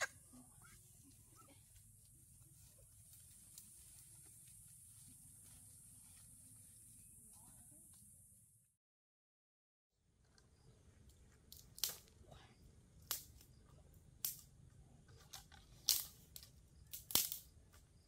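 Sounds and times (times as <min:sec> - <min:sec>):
dry leaves and twigs crunching: 0:00.6 - 0:07.0.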